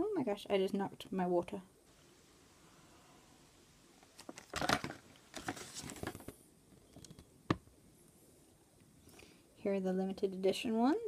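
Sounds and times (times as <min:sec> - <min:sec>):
paper crinkling: 0:04.1 - 0:07.2.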